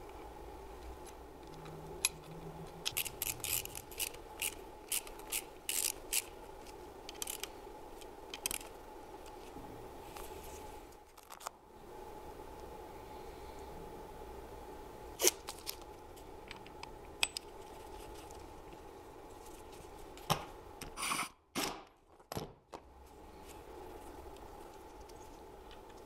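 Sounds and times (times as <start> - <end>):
steady low hum: 0.0 - 21.5, 22.8 - 26.0
screwdriver scraping clicks: 1.0 - 7.5.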